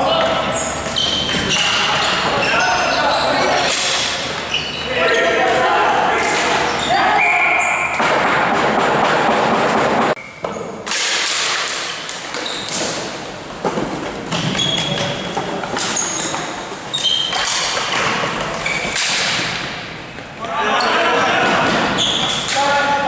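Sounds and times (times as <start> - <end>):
high squeaks: 0.4 - 5.5, 6.2 - 8.0, 12.2 - 13.1, 14.3 - 19.2, 21.9 - 22.8.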